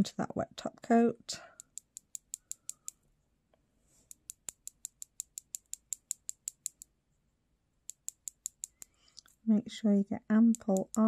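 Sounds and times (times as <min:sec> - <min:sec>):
brush tapping clicks: 0:01.5 - 0:03.0, 0:04.1 - 0:06.9, 0:07.9 - 0:09.4, 0:10.4 - 0:11.0.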